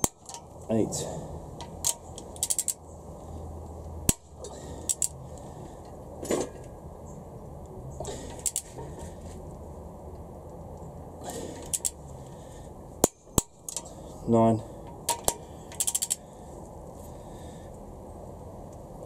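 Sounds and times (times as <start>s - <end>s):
torque wrench ratcheting: 1.8s - 2.8s, 11.6s - 11.9s, 15.2s - 16.2s.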